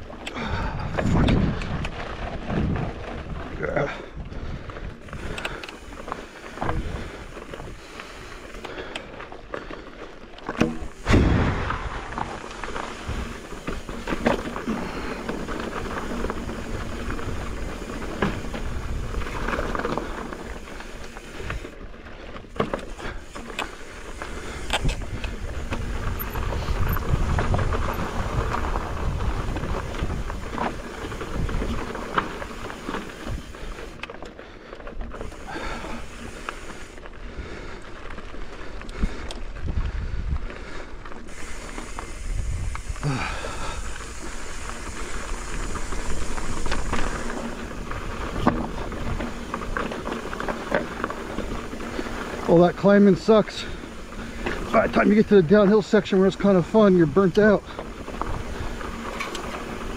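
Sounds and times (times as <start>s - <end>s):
wind rumbling on microphone: 0.0s - 8.6s, 10.8s - 34.1s, 35.0s - 52.5s, 57.0s - 59.9s
bike rattling: 0.0s - 59.9s
tyres crunching on loose stones: 0.0s - 59.9s
bike knocking over rocks: 0.4s - 4.0s, 5.1s - 21.8s, 22.4s - 34.0s, 41.3s - 55.4s.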